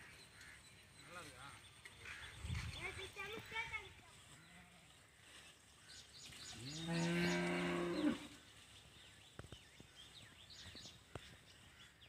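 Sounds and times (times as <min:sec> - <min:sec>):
cow mooing: 0:06.6 - 0:08.3.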